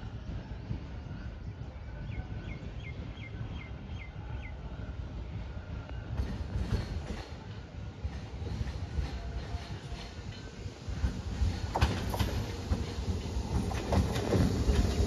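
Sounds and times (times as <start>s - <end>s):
train wheels rumbling on track: 0.0s - 15.0s
wheel clatter over rail joints: 8.1s - 15.0s.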